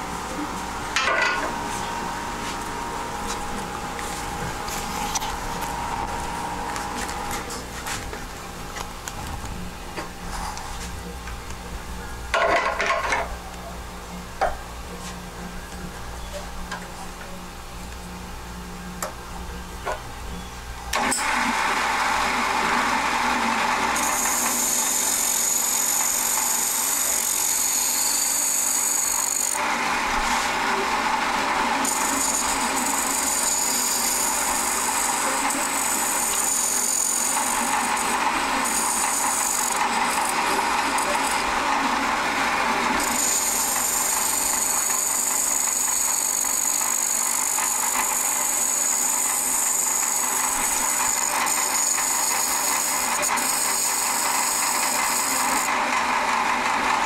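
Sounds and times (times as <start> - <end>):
lathe tool cutting wood hiss: 21.0 - 56.6.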